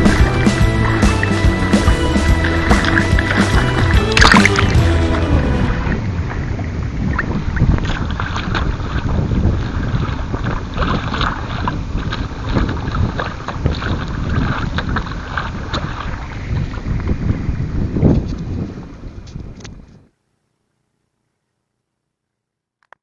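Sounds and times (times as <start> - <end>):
water slapping against hull: 0.0 - 5.2, 6.1 - 17.6
wind buffeting microphone: 5.6 - 20.1.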